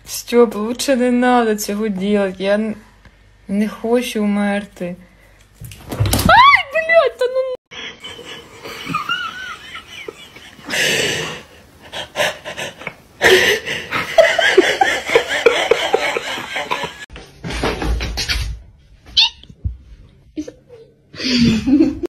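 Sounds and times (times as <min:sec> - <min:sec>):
people laughing hard: 0:07.8 - 0:17.1.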